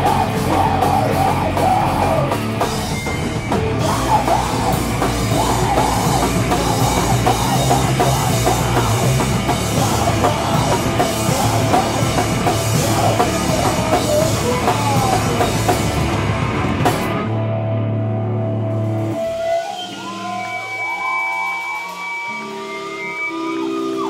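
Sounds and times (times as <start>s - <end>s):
drum kit with cymbals: 0.0s - 17.3s
distorted electric guitars: 0.0s - 24.0s
person singing into microphone: 3.8s - 15.7s.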